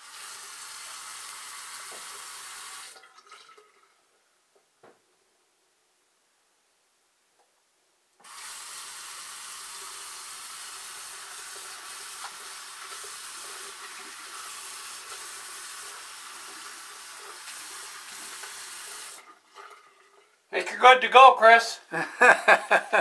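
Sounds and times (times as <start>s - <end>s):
water running into sink: 0.0s - 3.8s, 8.2s - 20.4s.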